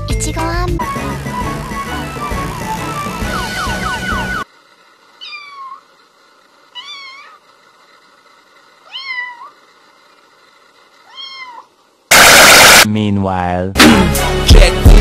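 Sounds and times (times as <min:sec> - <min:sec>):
kitten mewing: 0:05.2 - 0:05.9.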